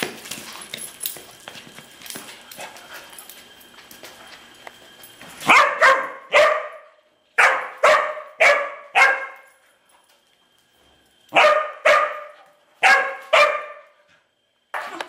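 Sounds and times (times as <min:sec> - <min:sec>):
dog barking: 0:05.4 - 0:09.4, 0:11.3 - 0:13.9.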